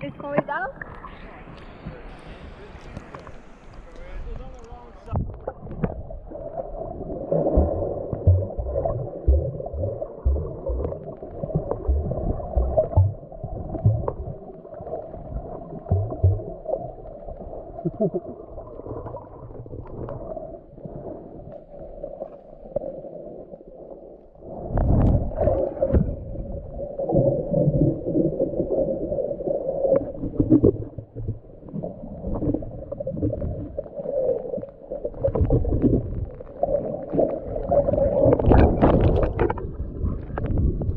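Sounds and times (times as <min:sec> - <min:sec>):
water rushing and sloshing: 0:00.0 - 0:40.9
low thumps: 0:07.5 - 0:14.3, 0:15.9 - 0:16.5.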